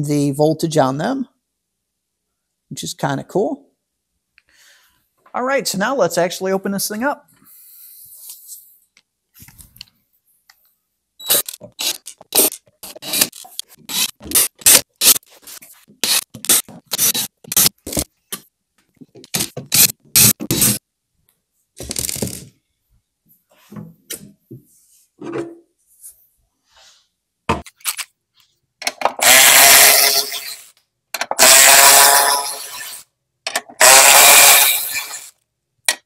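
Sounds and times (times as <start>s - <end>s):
cordless drill removing screws: 11.2s - 15.2s, 16.0s - 18.1s, 19.3s - 20.8s, 29.1s - 30.6s, 31.2s - 35.3s
cordless ratchet running: 29.2s - 30.6s.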